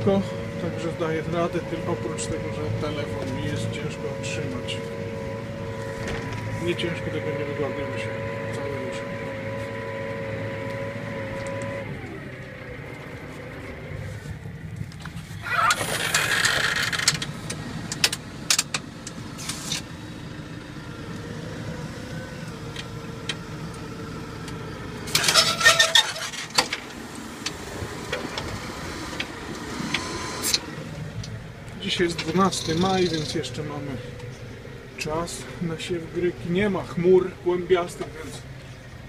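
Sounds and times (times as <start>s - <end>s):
tractor engine hum: 0.0s - 39.0s
soil scraping over plough: 25.1s - 26.6s.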